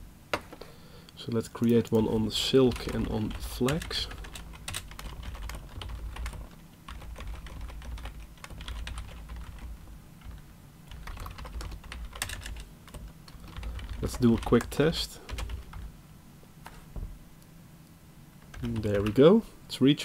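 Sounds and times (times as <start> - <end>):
computer keyboard typing: 1.6 - 15.9, 18.4 - 19.2.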